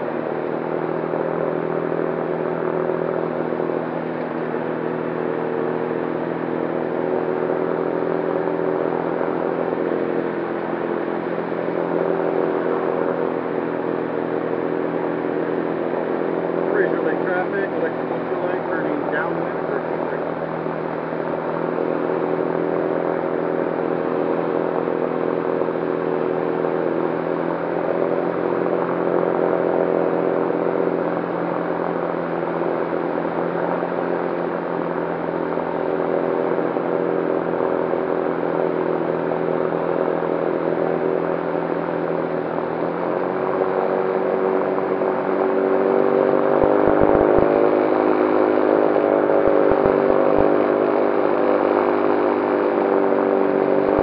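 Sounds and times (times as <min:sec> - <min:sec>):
electric aircraft motor whine: 0:00.0 - 0:54.0
propeller: 0:00.0 - 0:54.0
rushing wind: 0:43.3 - 0:52.4.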